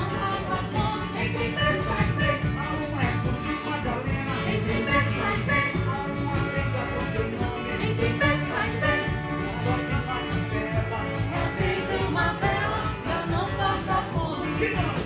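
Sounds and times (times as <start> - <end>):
electric guitar: 0.0 - 15.0
strummed acoustic guitars: 0.0 - 15.0
man singing into a microphone: 1.1 - 8.3, 9.5 - 11.4, 14.3 - 15.0.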